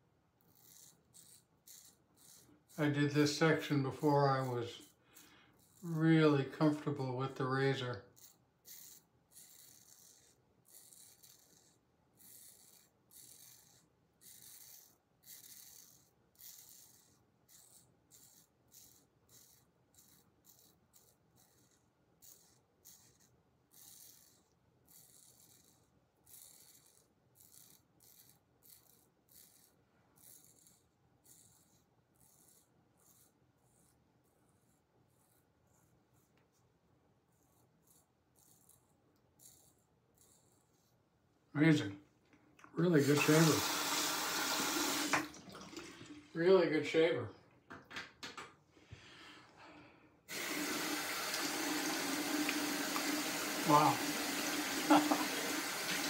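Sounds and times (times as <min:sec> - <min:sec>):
razor scraping stubble: 0:00.4 - 0:36.6, 0:37.3 - 0:41.0, 0:42.8 - 0:45.3, 0:50.3 - 0:56.0.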